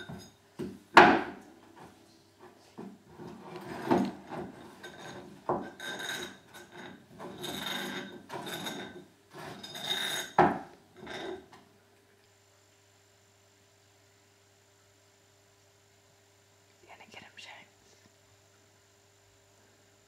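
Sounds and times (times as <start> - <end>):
sharp knocks on bowl: 0.0 - 1.4
teeth scraping porcelain bowl: 3.5 - 10.4.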